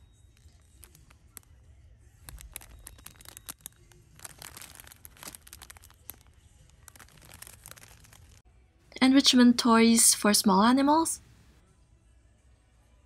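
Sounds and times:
plastic bag crinkling: 0.3 - 1.5, 2.2 - 8.4.

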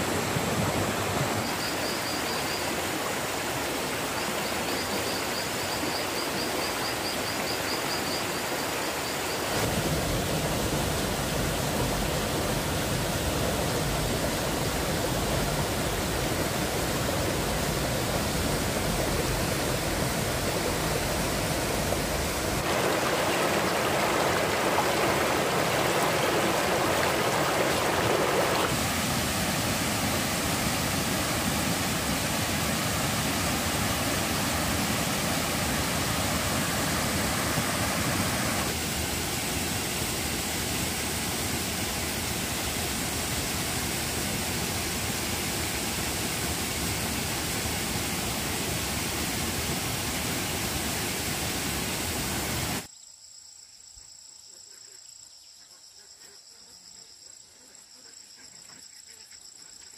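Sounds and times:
stream water rushing: 0.0 - 52.9
crickets chirping: 0.1 - 38.8, 52.9 - 59.9.

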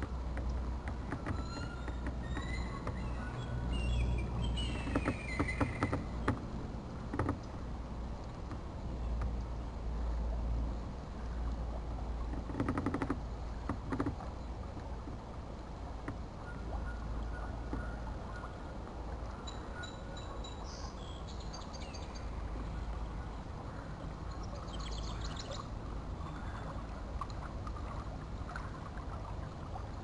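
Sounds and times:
birds chirping: 1.2 - 6.3, 19.3 - 26.7.

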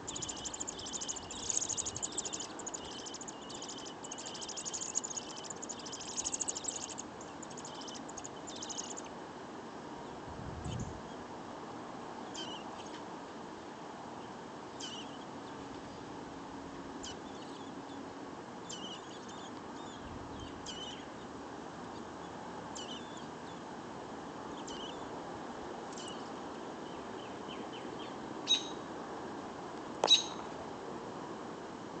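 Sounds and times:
robin chirping: 0.0 - 9.1, 18.7 - 21.1, 28.5 - 28.8, 30.0 - 30.4
background hiss: 0.0 - 16.1.

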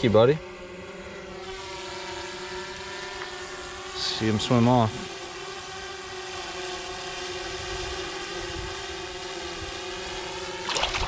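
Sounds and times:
drone propellers whirring: 5.2 - 11.0.

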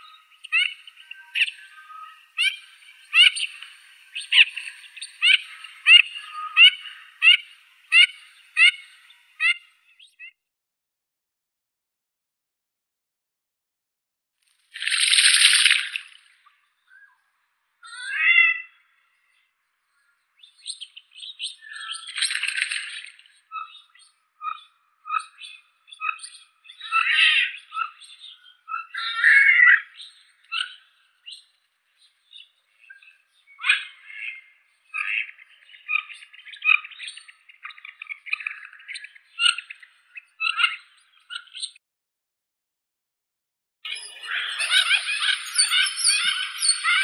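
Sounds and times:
ducks squeaky calls: 0.0 - 9.7, 43.9 - 47.0.

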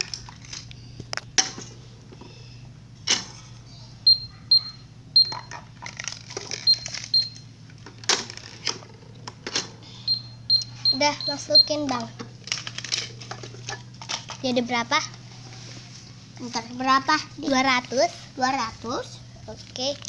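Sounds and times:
toy cash register beeps: 4.0 - 7.6, 9.8 - 12.2
plastic toys clicking and knocking: 5.2 - 9.8, 11.5 - 14.6, 19.6 - 20.0.

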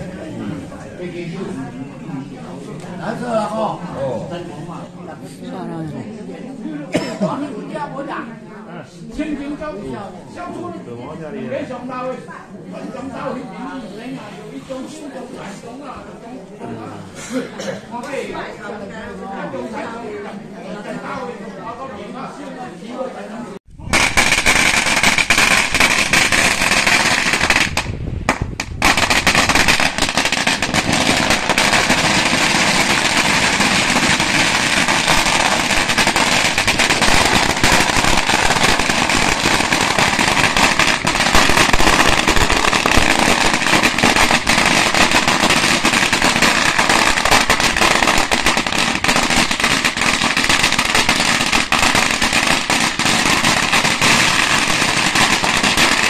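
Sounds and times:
firecrackers crackling: 23.8 - 56.0.

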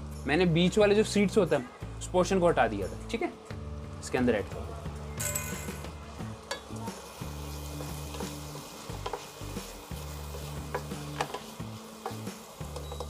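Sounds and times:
onions and tomatoes sizzling: 0.0 - 13.0
utensil clicking against pan: 8.9 - 9.3, 10.3 - 13.0.

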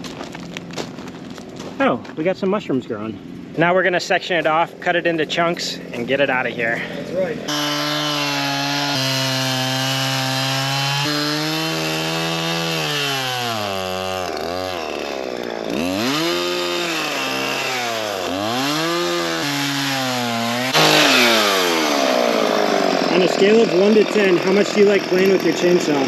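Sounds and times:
chainsaw cutting wood: 7.4 - 26.0.

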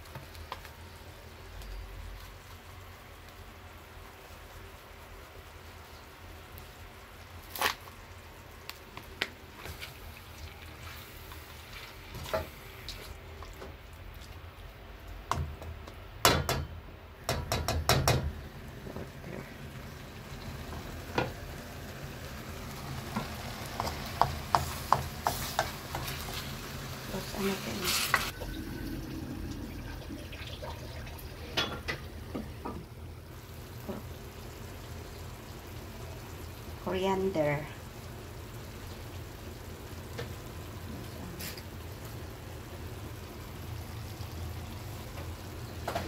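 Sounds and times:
low frying sizzle: 0.0 - 46.0
spoon stirring and scraping pan: 9.6 - 13.7, 23.1 - 28.3
spoon knocking on pan: 17.3 - 18.3, 23.2 - 26.1.

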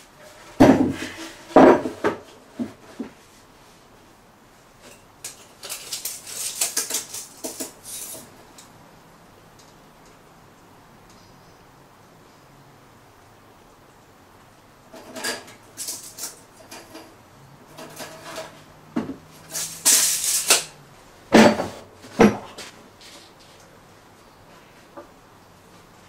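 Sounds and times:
tape measure clicks and rattles: 5.3 - 8.7, 19.4 - 20.7
tape measure blade retracting: 19.5 - 20.7.

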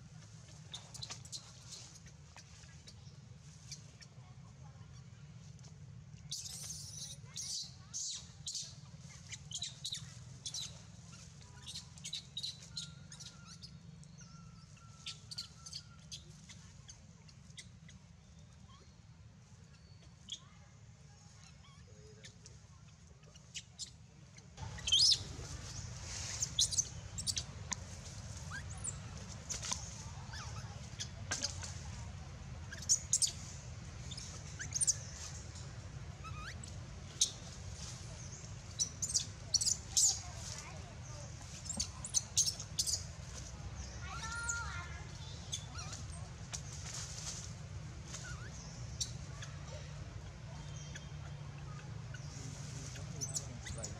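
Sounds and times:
low background rumble: 0.0 - 53.9
small birds chirping: 0.0 - 53.9
macaques squeaking: 6.3 - 17.0, 24.6 - 31.8, 32.6 - 35.6, 36.2 - 40.8, 41.5 - 43.4, 44.1 - 47.4, 48.0 - 49.6, 50.6 - 53.9.

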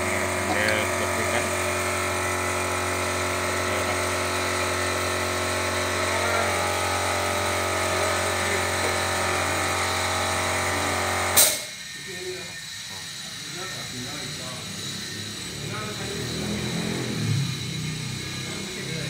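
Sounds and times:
motor humming: 0.0 - 19.0
sharp click: 11.4 - 11.7.

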